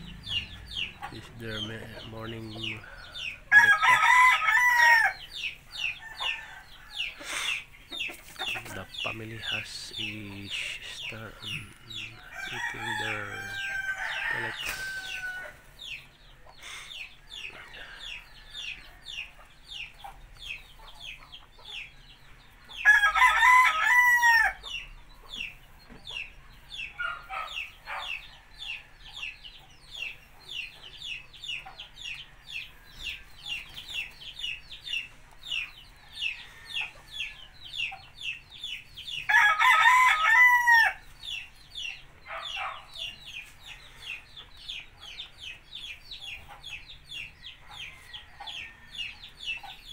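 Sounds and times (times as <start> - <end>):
rooster crowing: 3.4 - 5.2, 11.9 - 15.6, 22.8 - 24.6, 39.3 - 41.0.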